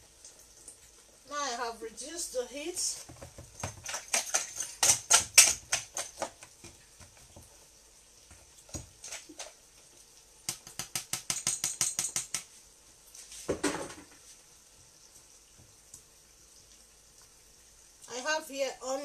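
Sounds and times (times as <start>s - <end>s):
whisk beating eggs in a bowl: 3.4s - 6.4s.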